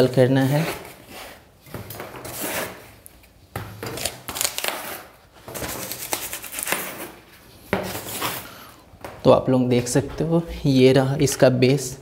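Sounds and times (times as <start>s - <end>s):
foam packing rustling and scraping: 0.4s - 3.0s, 3.9s - 8.6s.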